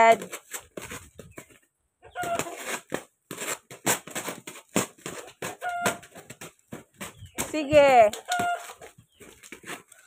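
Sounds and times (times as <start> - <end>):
birds scuffling: 0.0 - 10.0
hen clucking: 1.2 - 2.6, 5.1 - 6.4, 7.0 - 10.0.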